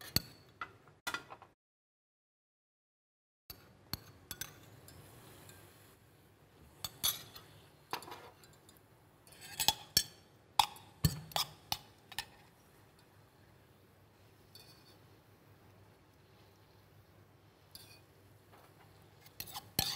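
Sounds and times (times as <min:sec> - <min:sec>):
metal spoon clinking in bowls: 0:03.5 - 0:05.7, 0:06.8 - 0:13.2, 0:14.5 - 0:15.0, 0:17.7 - 0:18.1, 0:19.2 - 0:19.9.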